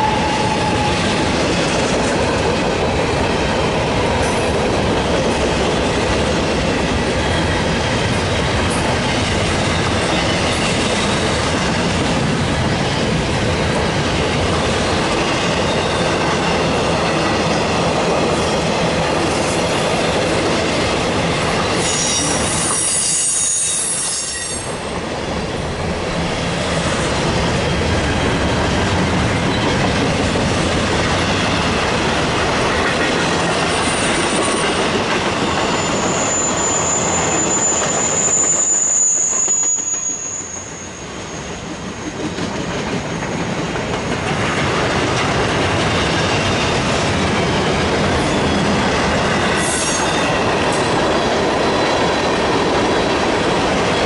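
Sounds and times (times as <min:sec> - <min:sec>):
high-pitched wheel squeal: 0:00.0 - 0:01.1, 0:21.8 - 0:24.8, 0:35.6 - 0:42.1
freight train rolling past: 0:00.0 - 0:54.0.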